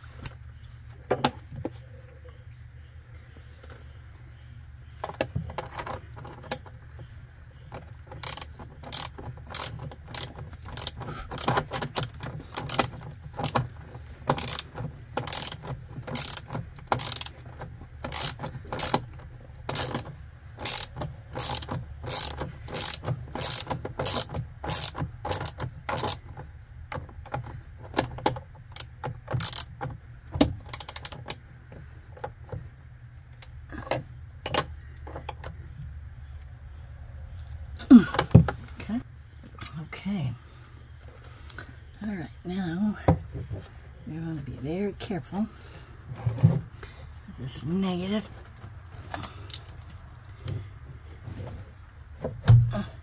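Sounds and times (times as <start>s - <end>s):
socket wrench ratchet clicking: 8.1s - 26.2s, 28.7s - 29.8s, 30.7s - 31.4s.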